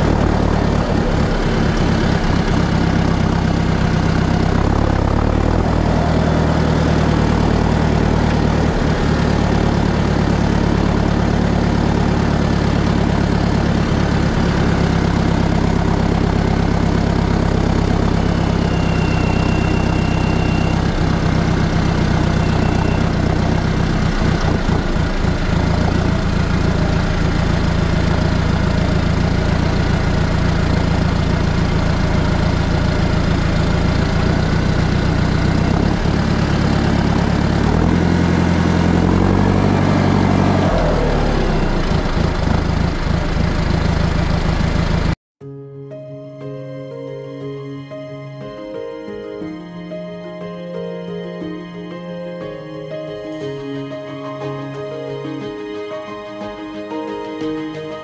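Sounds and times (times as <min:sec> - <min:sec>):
tractor diesel engine running: 0:00.0 - 0:45.2.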